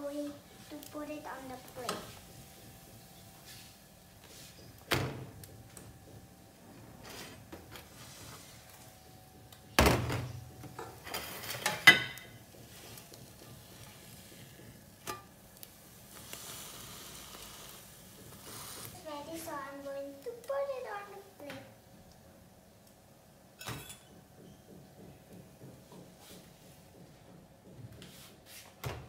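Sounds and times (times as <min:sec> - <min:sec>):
kitchenware clattering and clinking: 0:10.0 - 0:12.8, 0:23.6 - 0:24.9
toast sizzling in pan: 0:11.1 - 0:21.5.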